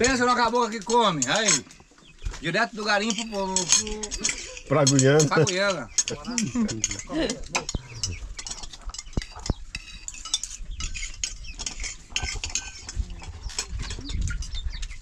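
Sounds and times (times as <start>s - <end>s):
cutlery clinking against plates: 0.0s - 2.2s, 2.8s - 15.0s
person speaking: 2.7s - 8.2s.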